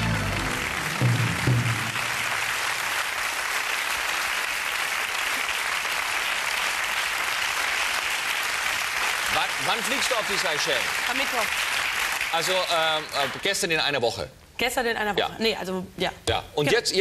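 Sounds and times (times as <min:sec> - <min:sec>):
music ending: 0:00.0 - 0:02.2
audience applauding: 0:00.0 - 0:13.9.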